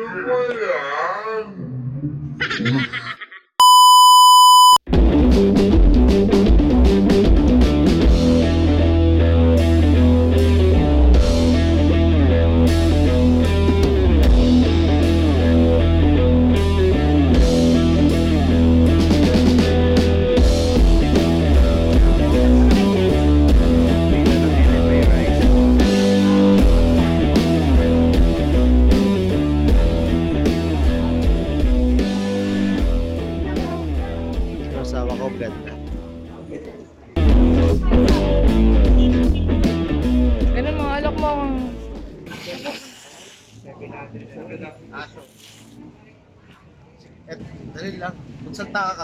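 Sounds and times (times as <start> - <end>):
electronic beep: 3.6 - 4.8
rock music with drums and guitar: 4.9 - 35.1, 37.2 - 42.1.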